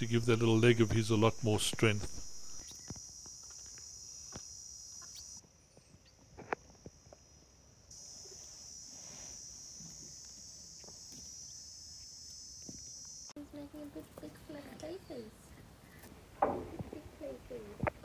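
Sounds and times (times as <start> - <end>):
high-pitched insect chorus: 0.0 - 13.4.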